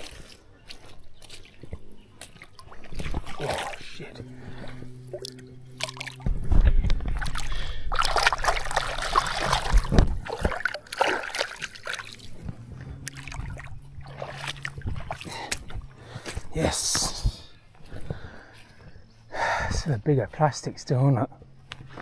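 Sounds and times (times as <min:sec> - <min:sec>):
fish splashing in water: 0:00.0 - 0:06.3, 0:07.1 - 0:16.0
fishing gear bumping and rustling: 0:01.0 - 0:17.2.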